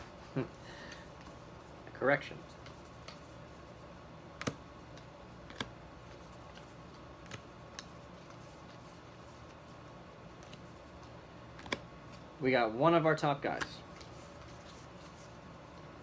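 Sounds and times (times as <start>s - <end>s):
faint room hum: 0.0s - 16.0s
trading cards flipped by hand: 2.5s - 3.4s, 4.3s - 9.6s, 10.2s - 12.3s, 13.5s - 15.4s.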